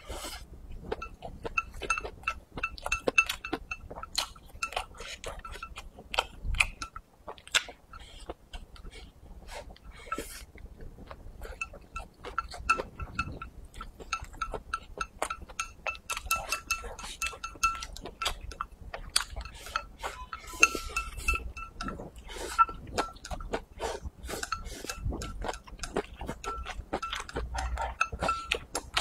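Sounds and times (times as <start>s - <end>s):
wet chewing: 0.0s - 29.0s
faint high ringing tone: 1.0s - 3.9s, 19.4s - 23.2s.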